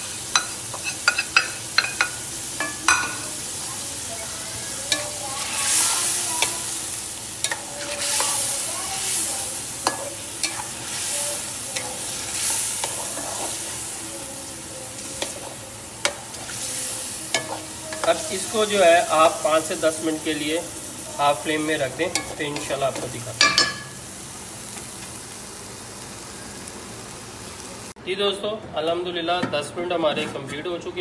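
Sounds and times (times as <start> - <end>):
chicken sizzling in oil: 0.0 - 28.0
spatula tapping a pot: 0.3 - 3.2.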